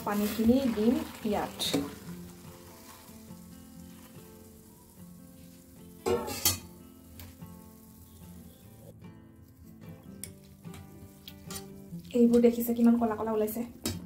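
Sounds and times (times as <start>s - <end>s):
water pouring into steel bowl: 0.0s - 4.4s
faint background music: 0.0s - 14.0s.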